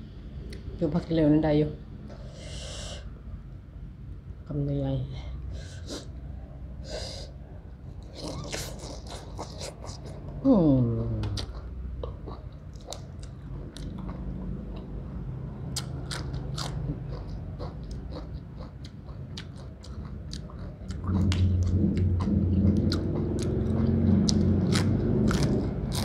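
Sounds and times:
low steady hum: 0:00.0 - 0:26.0
crunching lettuce: 0:22.9 - 0:26.0.

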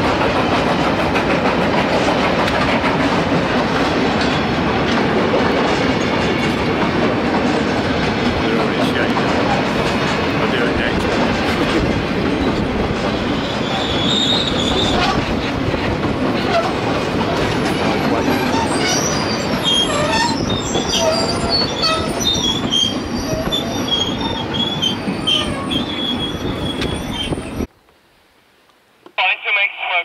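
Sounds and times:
railway wagons rumbling: 0:00.0 - 0:27.7
wheels squealing on rails: 0:12.3 - 0:15.5, 0:16.4 - 0:27.7.

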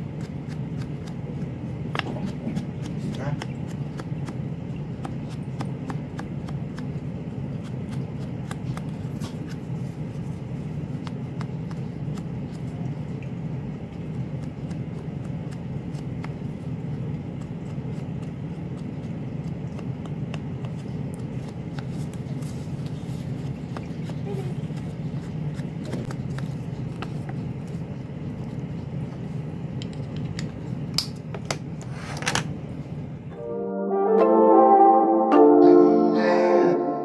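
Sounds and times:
foam pad dabbing on card: 0:13.9 - 0:29.0.

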